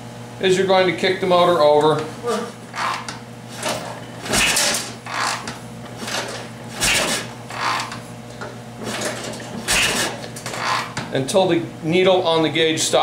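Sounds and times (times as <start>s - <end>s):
engine cranking without firing: 2.8s - 8.0s, 8.8s - 11.0s.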